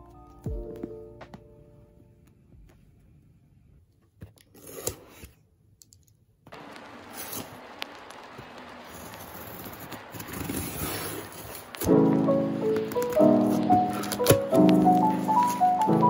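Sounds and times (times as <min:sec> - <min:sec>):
packing tape scraped and slit: 0:04.4 - 0:05.4, 0:10.1 - 0:11.9, 0:13.0 - 0:15.6.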